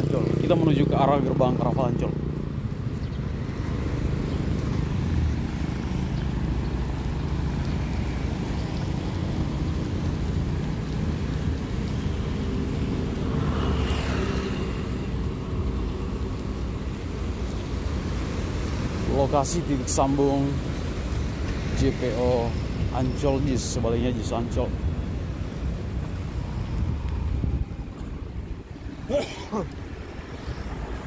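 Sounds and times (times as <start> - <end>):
vehicle passing close: 0.0 - 17.0
road traffic rumble: 0.0 - 31.0.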